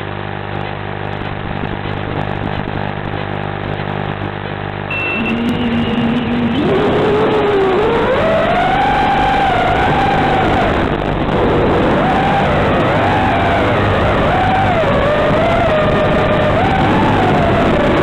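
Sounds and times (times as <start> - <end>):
quadcopter motors whining: 4.9 - 18.0.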